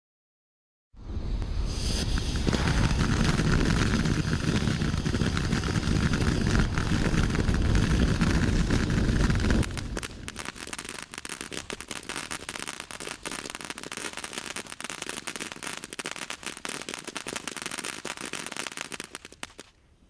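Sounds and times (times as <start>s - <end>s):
firework crackling: 1.1s - 19.8s.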